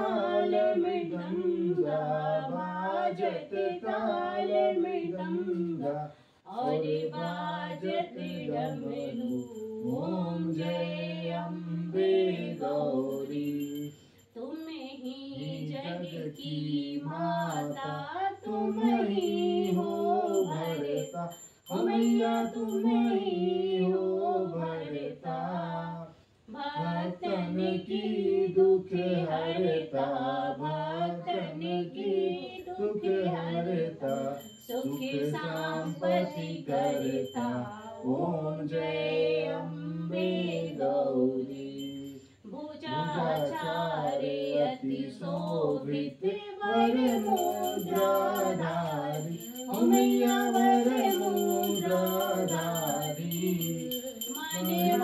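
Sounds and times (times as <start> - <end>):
small bell ringing: 6.6 - 23.5, 33.9 - 38.2, 41.5 - 44.8, 46.6 - 55.0.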